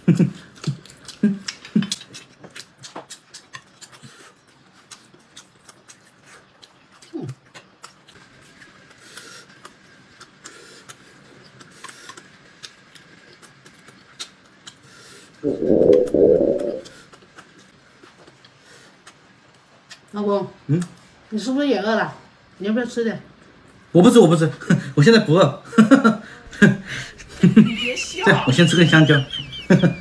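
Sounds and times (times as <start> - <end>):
chewing and lip-smacking: 0.2 - 15.5, 16.9 - 20.1.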